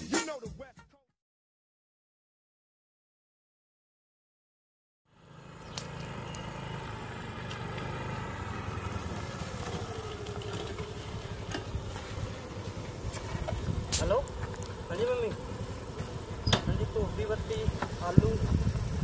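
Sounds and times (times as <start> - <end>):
motor scooter engine slowing: 5.1 - 19.0.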